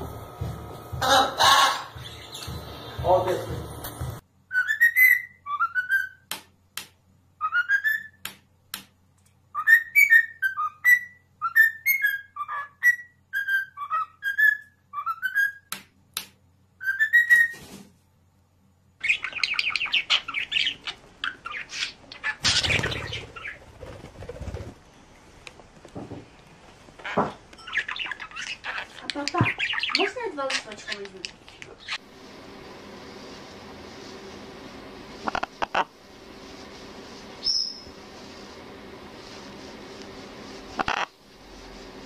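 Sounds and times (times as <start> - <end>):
parrot whistling a tune: 4.5 - 6.2, 7.4 - 8.2, 9.5 - 15.7, 16.8 - 17.6, 37.4 - 37.9
harsh bird chatter: 19.0 - 24.6, 27.0 - 32.0.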